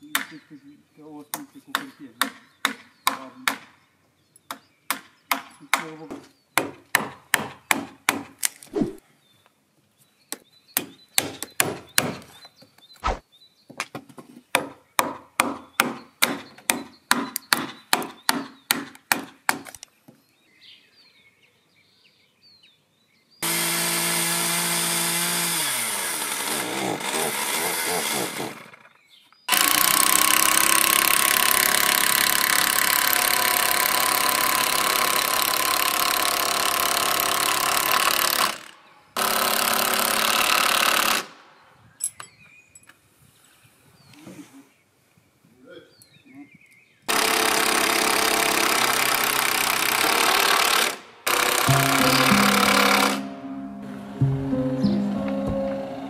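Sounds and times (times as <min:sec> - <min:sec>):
power tool motor winding down: 0:23.4 - 0:28.8, 0:29.5 - 0:41.2, 0:47.1 - 0:53.3
hammer blows on chisel: 0:51.5 - 0:56.0.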